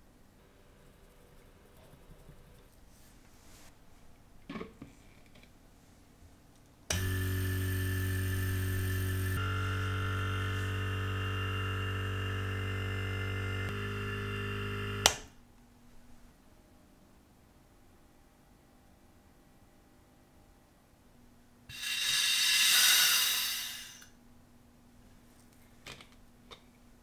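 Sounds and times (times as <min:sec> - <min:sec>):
pump electric hum: 0:06.9 - 0:15.2.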